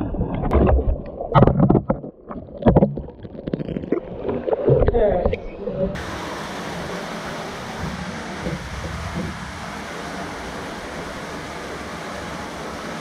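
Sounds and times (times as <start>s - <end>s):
stream water rushing: 5.9s - 13.0s.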